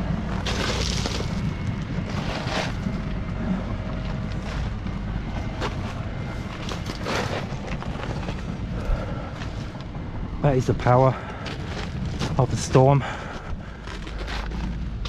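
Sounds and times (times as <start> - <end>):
footsteps crunching dead leaves: 0.2 - 2.9.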